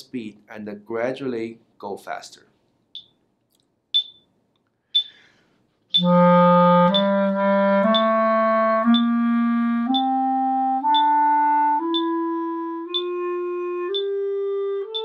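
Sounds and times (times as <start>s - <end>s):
metronome ticking: 3.0s - 3.2s, 3.9s - 4.3s, 4.9s - 5.3s, 5.9s - 10.2s, 10.8s - 14.2s
clarinet playing a scale: 6.0s - 15.0s.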